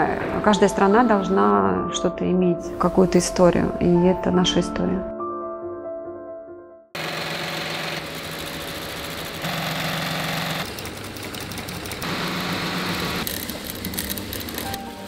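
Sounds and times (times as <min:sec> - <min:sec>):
music: 0:00.0 - 0:07.0, 0:12.5 - 0:15.0
machinery humming and ticking: 0:07.0 - 0:14.9.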